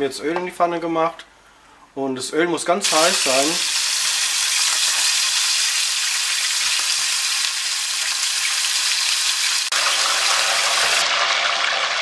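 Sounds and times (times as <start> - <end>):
fish sizzling in hot oil: 2.8 - 12.0.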